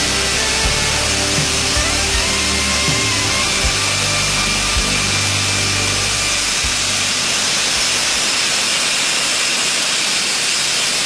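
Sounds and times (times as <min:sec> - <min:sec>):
short low thumps: 0:00.0 - 0:08.4
low machine hum: 0:00.0 - 0:08.8.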